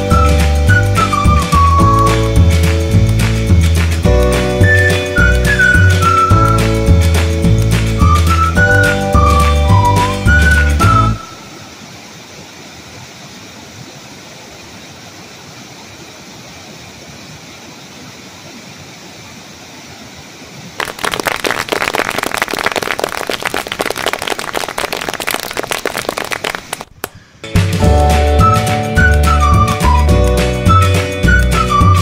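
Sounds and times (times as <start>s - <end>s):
waterfall rushing over rocks: 11.2s - 21.2s.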